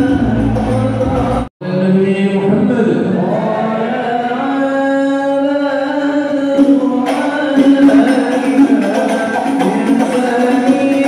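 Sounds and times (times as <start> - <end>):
drum-like percussion hits: 6.6 - 11.0.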